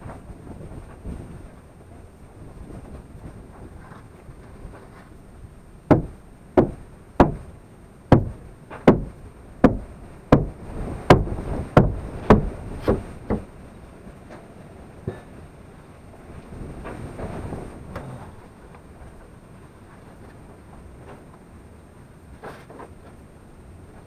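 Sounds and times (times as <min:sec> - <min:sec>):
hard hammer blows: 0:05.9 - 0:07.5, 0:08.1 - 0:13.5.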